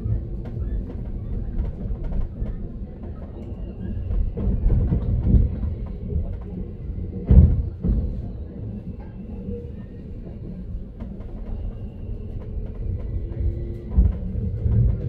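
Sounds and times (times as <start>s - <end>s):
train rumbling on rails: 0.0s - 15.0s.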